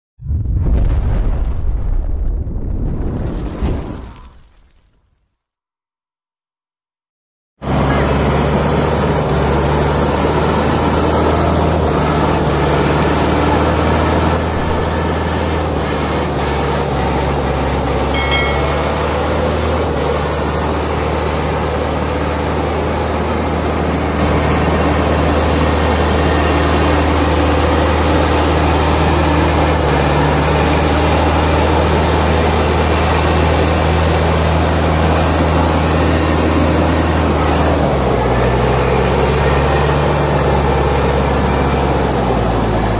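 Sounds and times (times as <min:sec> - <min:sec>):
tractor diesel engine running: 0:07.6 - 0:42.9
high-pitched tone: 0:18.2 - 0:19.6.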